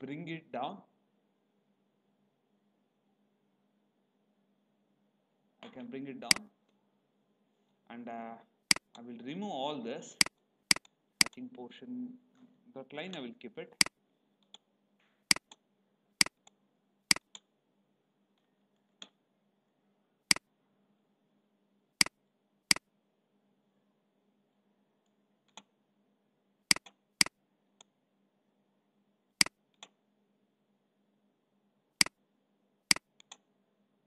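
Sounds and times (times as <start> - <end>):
faint low hum: 0.0 - 34.0
computer mouse clicking: 10.2 - 11.4, 15.3 - 15.6, 16.2 - 17.5, 26.7 - 27.9, 29.4 - 30.0, 32.9 - 33.5.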